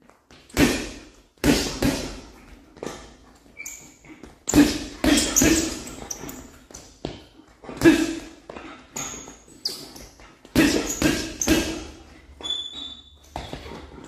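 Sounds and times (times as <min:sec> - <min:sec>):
punches thudding on heavy bag: 0:00.5 - 0:02.3
short squeak: 0:03.6 - 0:04.1, 0:09.0 - 0:10.0, 0:12.4 - 0:13.8.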